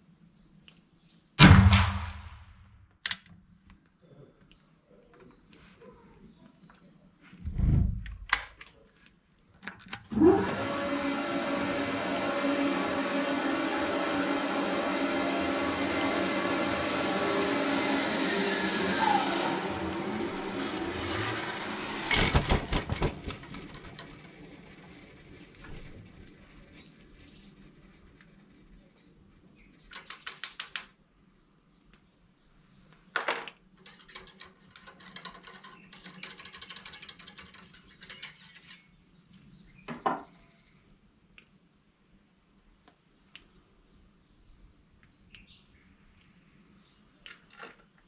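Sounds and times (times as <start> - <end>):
loud steady humming noise: 10.1 - 27.4
gear clicks and rattles: 33.8 - 38.6.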